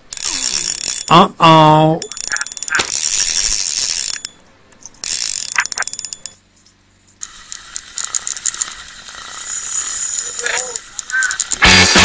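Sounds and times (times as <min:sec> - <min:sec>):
fishing reel clicking: 0:00.1 - 0:01.1, 0:02.0 - 0:04.3, 0:05.0 - 0:06.4, 0:07.2 - 0:11.6.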